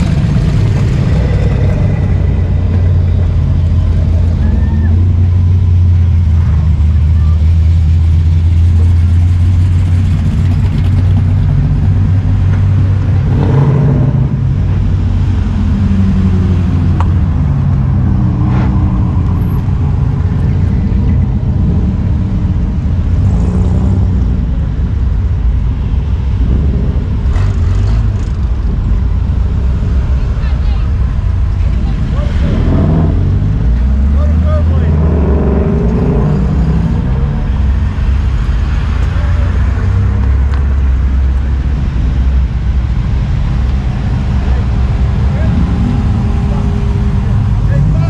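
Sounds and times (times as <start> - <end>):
car engines rumbling past: 0.0 - 48.0.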